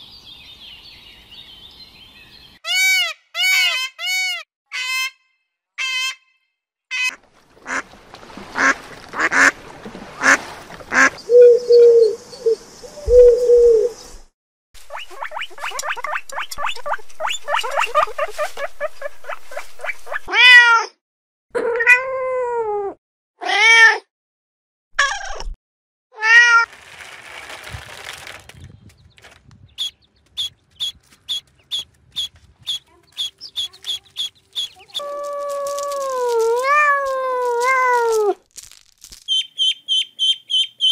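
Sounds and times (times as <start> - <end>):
rapid chattering animal calls: 14.9 - 20.3, 29.8 - 35.5.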